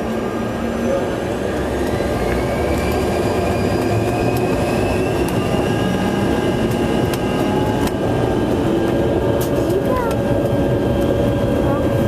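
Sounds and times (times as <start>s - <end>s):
jet engines rumbling and whining: 0.0s - 12.0s.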